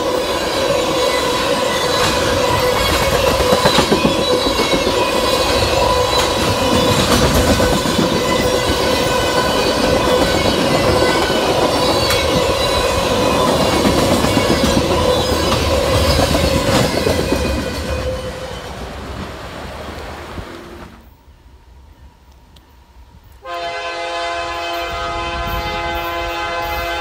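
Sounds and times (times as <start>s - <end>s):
rail joint clicks: 0.0s - 21.2s
train wheels rumbling on rail: 0.0s - 21.2s, 21.8s - 27.0s.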